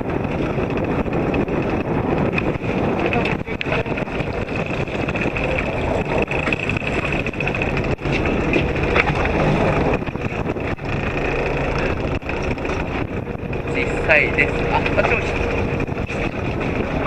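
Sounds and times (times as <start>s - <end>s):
boat engine running: 0.0s - 17.0s
wind noise on microphone: 0.0s - 17.0s.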